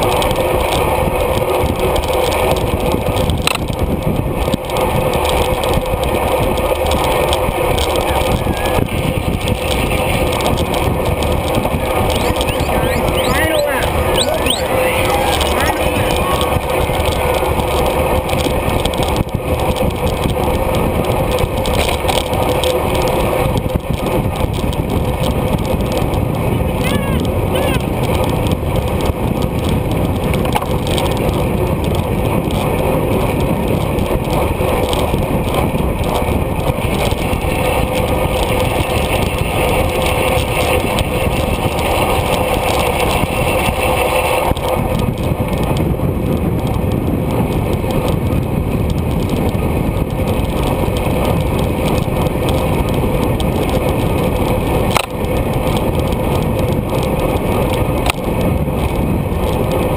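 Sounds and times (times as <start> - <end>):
bicycle tyre and road noise: 0.0 - 59.9
wind rushing over microphone: 0.0 - 59.9.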